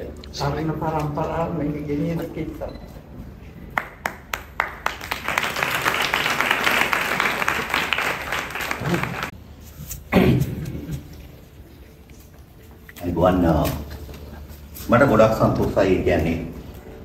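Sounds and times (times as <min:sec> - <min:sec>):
audience clapping: 0:03.7 - 0:09.4.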